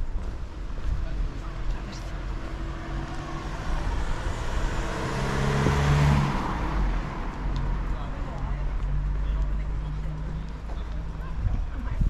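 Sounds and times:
vehicle passing close by: 0:02.2 - 0:09.2.

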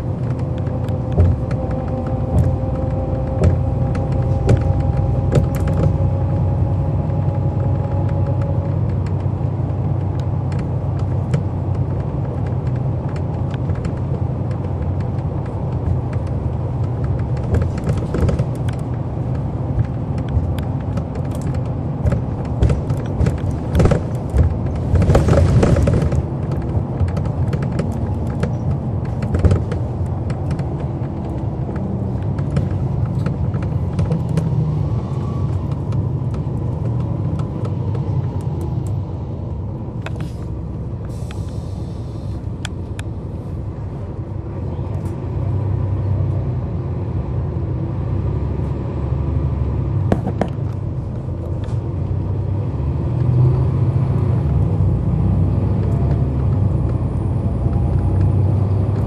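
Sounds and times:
bus diesel engine rumble: 0:00.0 - 0:59.0
short hiss: 0:41.1 - 0:42.4.

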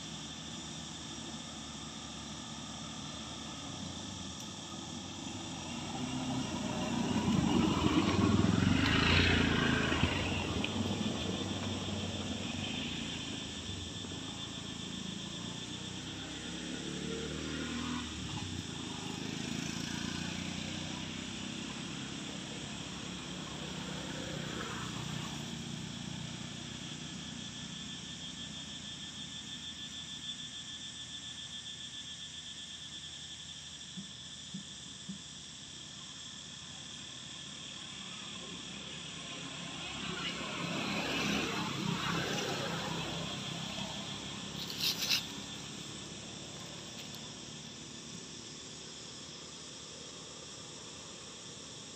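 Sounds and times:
high insect drone: 0:00.0 - 0:51.9
motor vehicle passing: 0:05.2 - 0:13.6, 0:39.3 - 0:48.4.

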